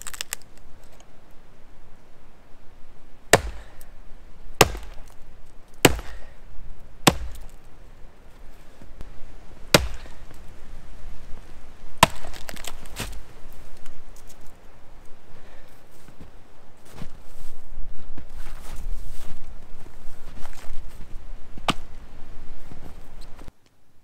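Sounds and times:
axe chopping wood: 3.3 - 3.8, 4.6 - 5.2, 5.8 - 6.3, 7.0 - 7.6, 9.7 - 10.2, 12.0 - 13.2.

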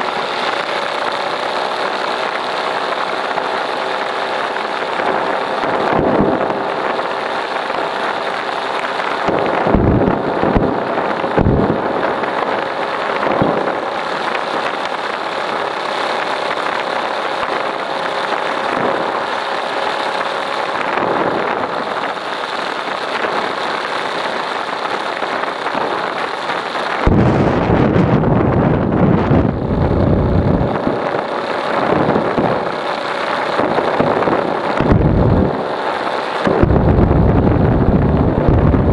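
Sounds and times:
motorcycle engine running: 0.0 - 24.1, 24.8 - 38.9
wind buffeting microphone: 4.6 - 16.9, 26.9 - 38.9.

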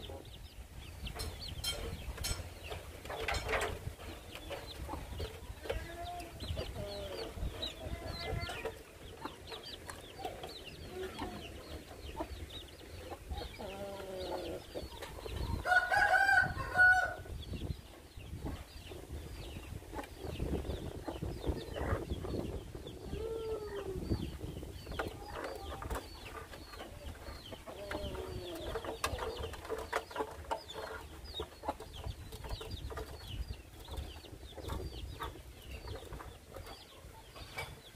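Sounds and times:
chicks peeping: 0.0 - 37.9
hen clucking: 0.0 - 37.9
rooster crowing: 15.6 - 17.3.

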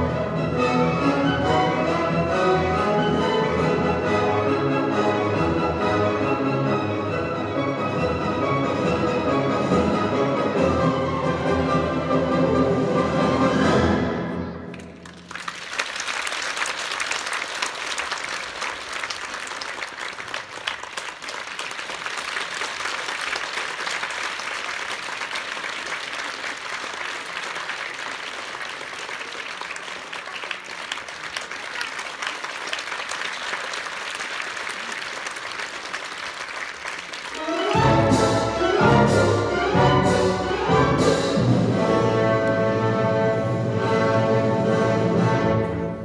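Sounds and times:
orchestra playing: 0.0 - 14.8, 37.2 - 46.0
audience applauding: 14.7 - 40.7.

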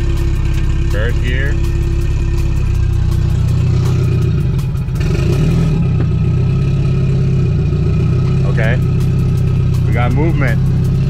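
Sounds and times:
car engine running: 0.0 - 11.0.

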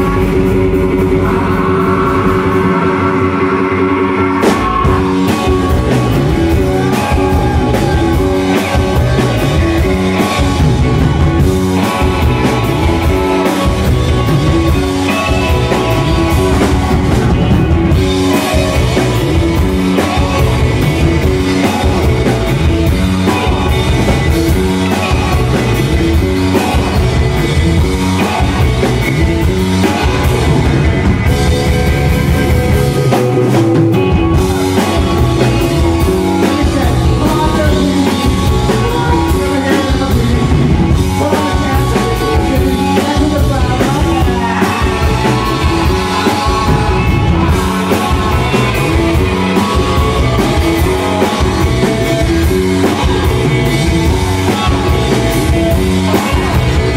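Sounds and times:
person singing: 0.0 - 31.8, 32.4 - 56.9
live rock band playing: 0.0 - 56.9.

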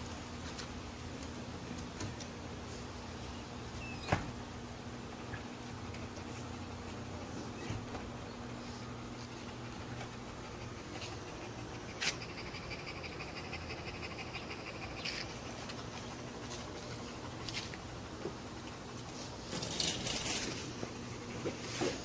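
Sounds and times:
low background hum: 0.0 - 22.0
dog panting: 8.4 - 19.4.

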